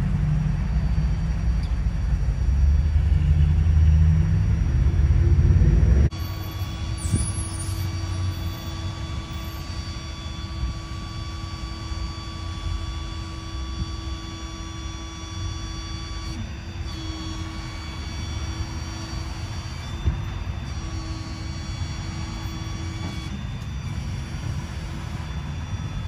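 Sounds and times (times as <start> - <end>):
truck engine rumble: 0.0 - 11.0
winch whining: 4.1 - 26.0.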